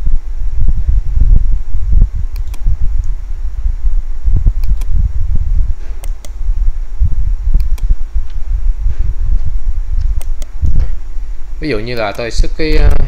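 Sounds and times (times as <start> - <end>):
loud low rumble: 0.0 - 11.6
computer mouse clicking: 2.3 - 3.2, 4.6 - 5.0, 6.0 - 6.4, 7.6 - 8.4, 10.0 - 10.6.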